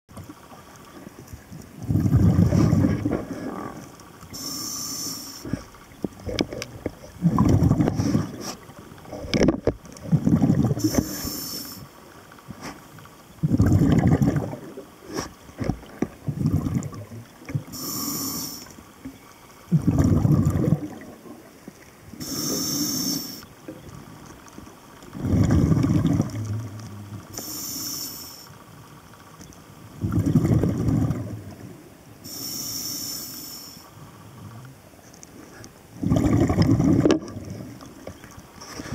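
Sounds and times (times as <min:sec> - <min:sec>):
exhaled air bubbling: 0:00.3 - 0:04.5, 0:05.4 - 0:12.6, 0:13.3 - 0:24.0, 0:25.0 - 0:27.4, 0:29.9 - 0:31.9, 0:35.9 - 0:38.4
regulator inhale hiss: 0:04.3 - 0:05.8, 0:10.8 - 0:13.0, 0:17.7 - 0:18.8, 0:22.2 - 0:23.5, 0:27.3 - 0:28.6, 0:32.2 - 0:34.0.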